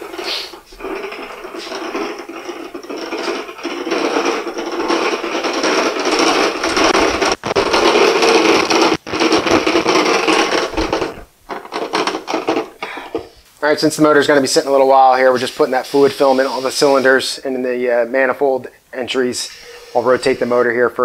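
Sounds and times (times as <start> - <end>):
dolly casters rolling on concrete: 0.0 - 13.3, 19.3 - 21.0.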